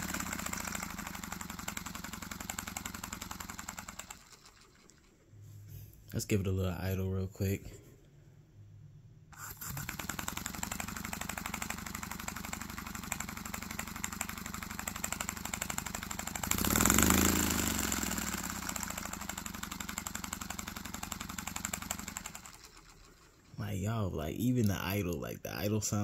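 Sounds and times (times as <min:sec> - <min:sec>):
small engine exhaust puffs: 0:00.0 - 0:06.1, 0:09.3 - 0:23.7.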